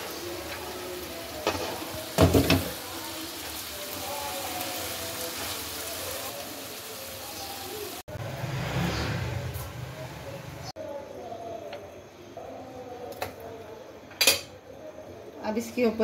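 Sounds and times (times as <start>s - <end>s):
meat sizzling in a pan: 0.0s - 8.1s.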